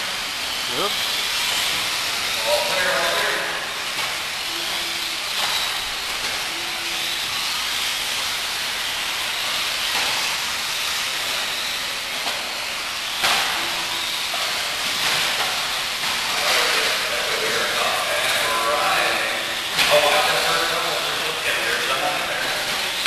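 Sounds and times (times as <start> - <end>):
rc buggies racing: 0.0 - 23.0.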